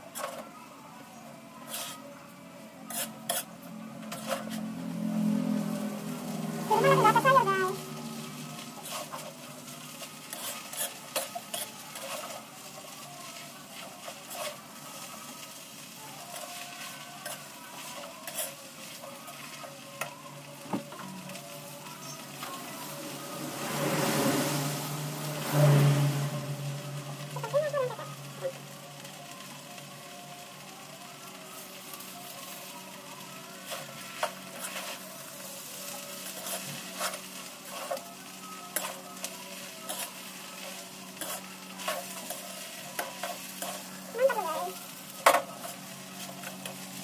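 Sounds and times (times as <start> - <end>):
noodles sizzling in a wok: 0.0 - 47.0
metal spatula scraping a wok: 1.6 - 2.0, 2.9 - 4.7, 5.5 - 13.0, 13.8 - 15.1, 16.3 - 19.5, 33.7 - 38.1, 38.7 - 47.0.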